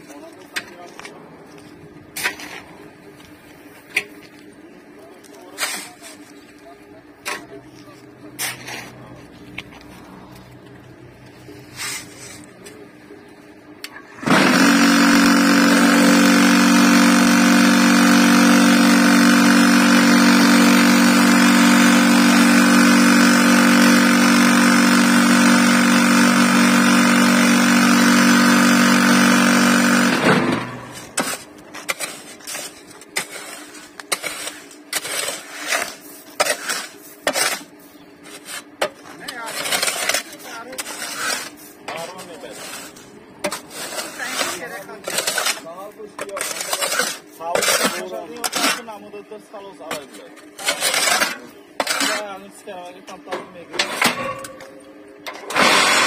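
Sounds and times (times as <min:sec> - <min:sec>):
vibrator motor humming: 0:14.2 - 0:31.2.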